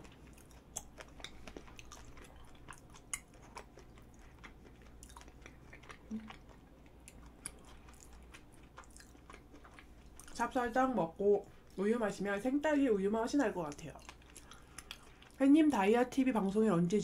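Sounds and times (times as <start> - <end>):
person chewing soft food: 0.0 - 10.5, 11.4 - 11.8, 13.2 - 15.4.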